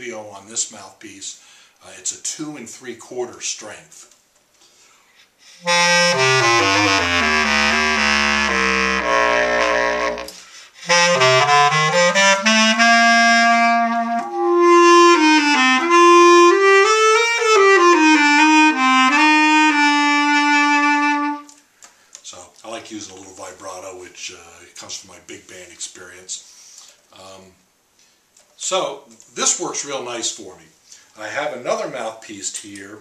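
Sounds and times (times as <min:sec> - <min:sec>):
bass clarinet playing: 0:05.6 - 0:21.6.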